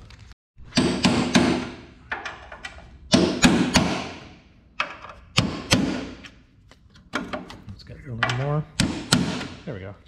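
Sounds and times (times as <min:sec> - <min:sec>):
hammer striking metal punch: 0:00.7 - 0:01.8, 0:03.1 - 0:04.3, 0:05.3 - 0:06.3, 0:08.7 - 0:09.6.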